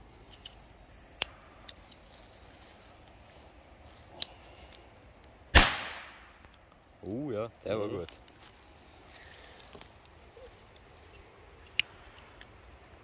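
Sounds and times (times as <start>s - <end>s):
firecracker bang: 5.5s - 6.4s.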